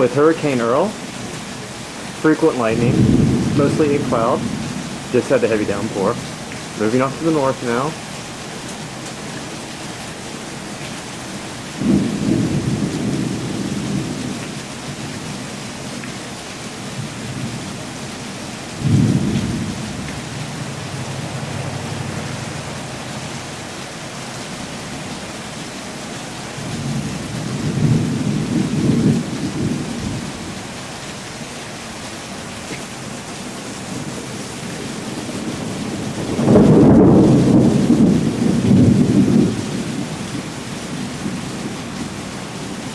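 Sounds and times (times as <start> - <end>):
light rain hiss: 0.0 - 42.9
thunder rolling: 2.5 - 6.2, 11.8 - 14.4, 18.8 - 21.4, 33.9 - 41.8.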